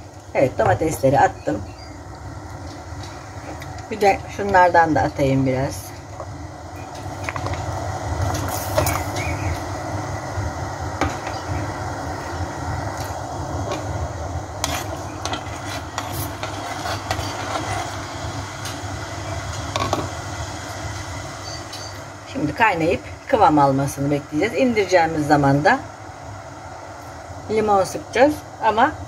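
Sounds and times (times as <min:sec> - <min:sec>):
syrup boiling in a pot: 0:01.6 - 0:21.4.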